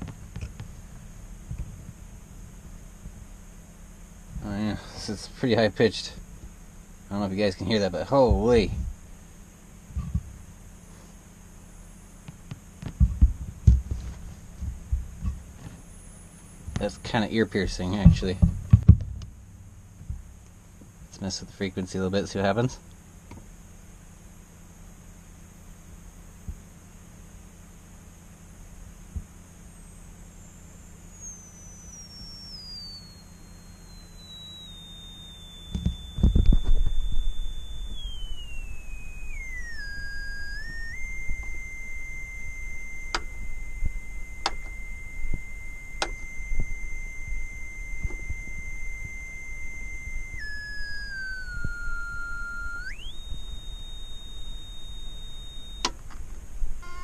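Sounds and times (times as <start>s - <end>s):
speaker tone changing pitch: 7.1s - 9.0s, 30.4s - 57.0s
loud low thump and rumble: 7.7s - 9.0s, 9.9s - 10.4s, 12.5s - 15.6s, 17.7s - 20.5s, 35.7s - 38.0s
sharp clicks: 33.8s - 57.0s.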